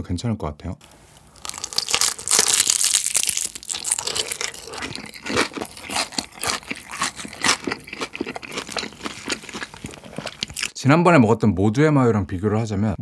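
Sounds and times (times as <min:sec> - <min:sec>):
crunchy chewing: 0:01.2 - 0:10.8
biting crispy fried chicken: 0:01.4 - 0:10.8.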